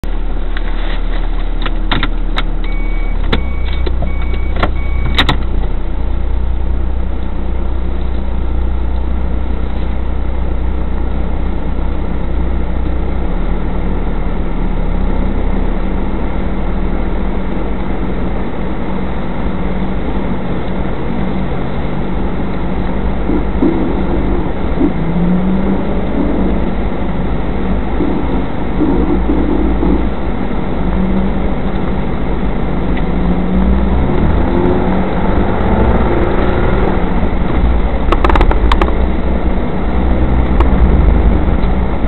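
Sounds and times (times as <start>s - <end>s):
car engine and road rumble: 0.0s - 42.0s
short beeps: 2.6s - 5.2s.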